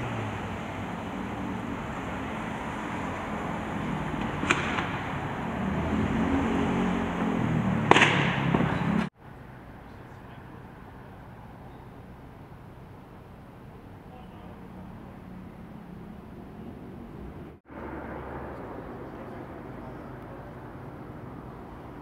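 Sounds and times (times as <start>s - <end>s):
sharp cracks: 4.1s - 5.3s, 7.8s - 9.1s.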